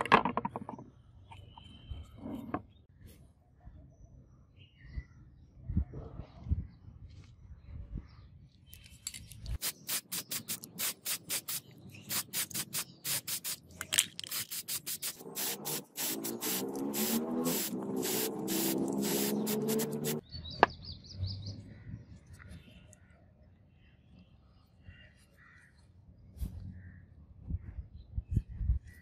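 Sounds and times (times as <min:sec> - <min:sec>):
aerosol can spraying: 0:09.6 - 0:20.2.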